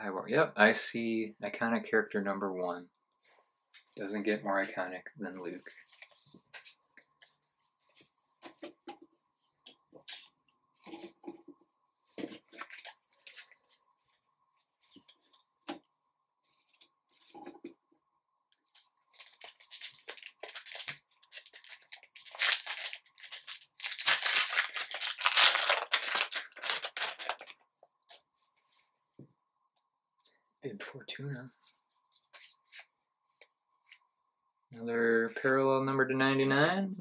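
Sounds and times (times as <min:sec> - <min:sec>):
foil wrapper crinkling and tearing: 0:19.2 - 0:27.6.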